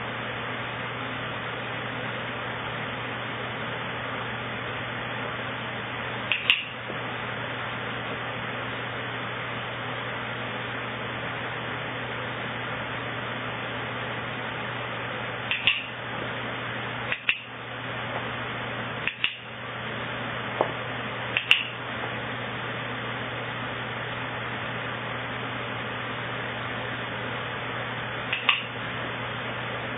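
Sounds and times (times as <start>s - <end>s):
electric fan whirring: 0.0s - 29.9s
training clicker clicks: 15.5s - 15.9s, 28.3s - 28.7s.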